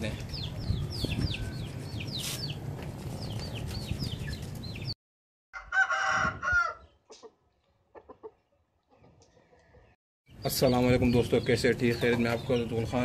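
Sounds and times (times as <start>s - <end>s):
small birds chirping: 0.0s - 5.0s, 6.8s - 13.0s
rooster crowing: 5.6s - 6.8s.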